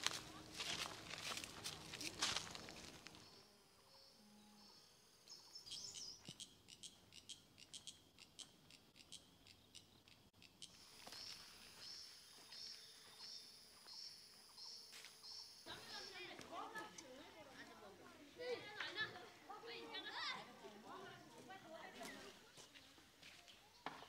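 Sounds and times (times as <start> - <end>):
faint high-pitched chirping: 2.6 - 16.4.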